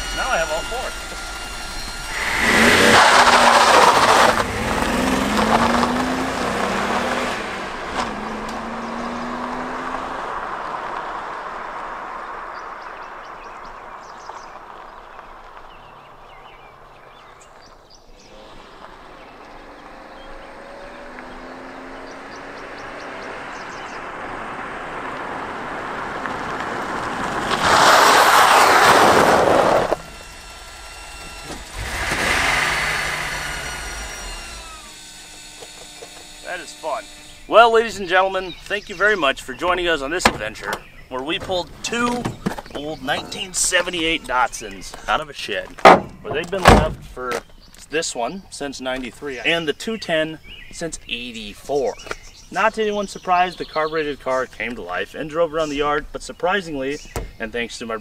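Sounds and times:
car passing close: 0.0s - 15.2s, 18.2s - 35.0s
car engine accelerating: 0.0s - 15.7s, 18.2s - 45.2s
tyres crunching on gravel: 0.0s - 58.0s.

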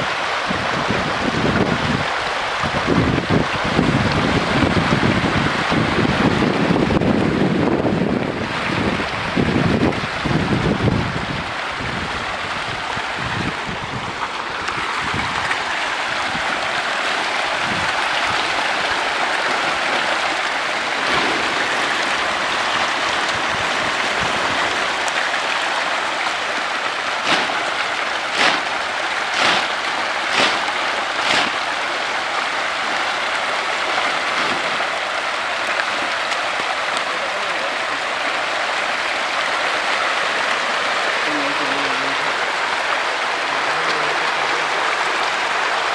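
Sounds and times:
fish splashing and churning: 0.0s - 45.9s
sharp water slaps: 16.3s - 37.6s.

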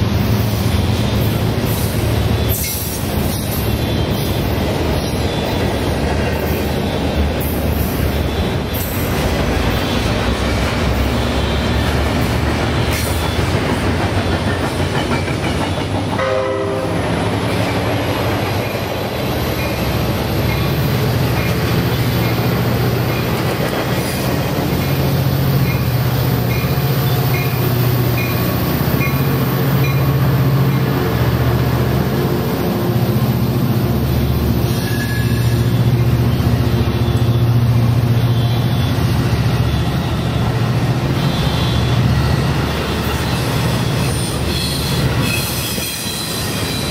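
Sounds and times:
diesel locomotive rumble: 0.0s - 46.9s
rail noise: 0.0s - 46.9s
train horn blast: 16.2s - 17.2s.

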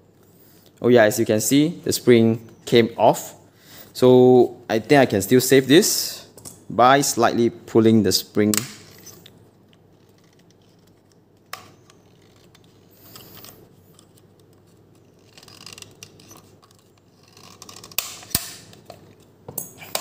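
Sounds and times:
plastic parts clicking and scraping: 8.8s - 20.0s.

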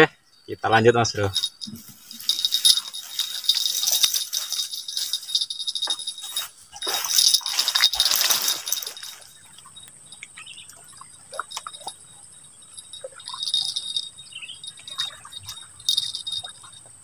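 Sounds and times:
short rustles: 1.3s - 9.3s.

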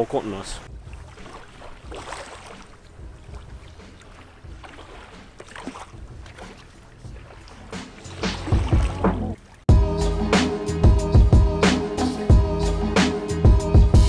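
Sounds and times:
waves lapping on stones: 0.0s - 9.7s.

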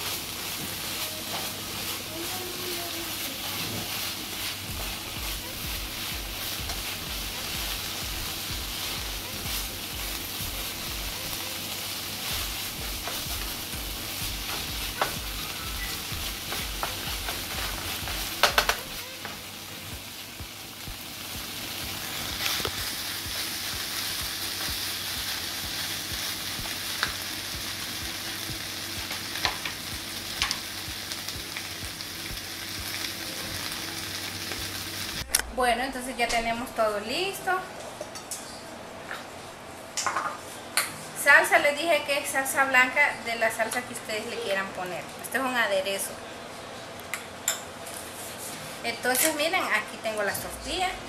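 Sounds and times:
chicken sizzling in frying pan: 0.0s - 35.3s.

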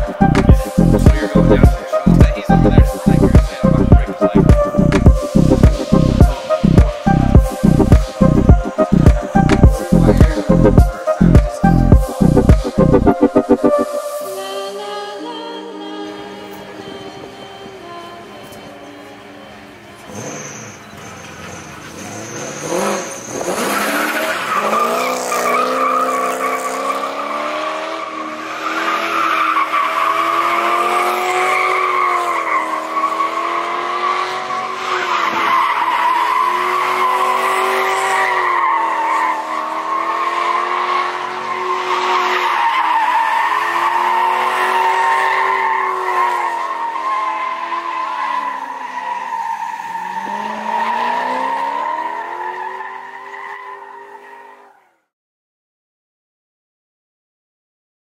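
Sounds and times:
tyres squealing: 0.0s - 13.6s, 16.7s - 27.3s
car engine revving: 0.0s - 14.2s, 20.0s - 49.0s, 49.9s - 52.6s.

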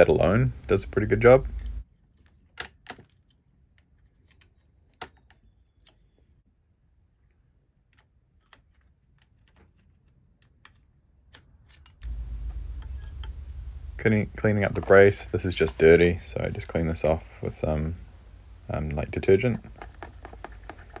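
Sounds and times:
low steady hum: 0.0s - 2.3s, 11.8s - 21.0s.

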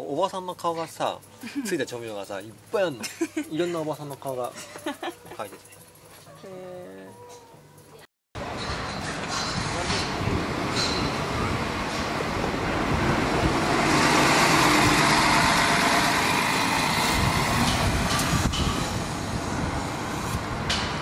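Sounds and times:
bus driving past: 9.7s - 21.0s.

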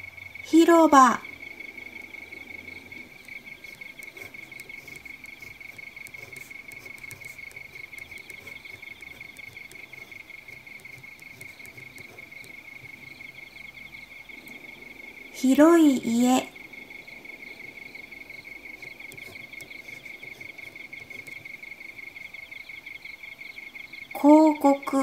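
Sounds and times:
crickets chirping: 0.0s - 25.0s.

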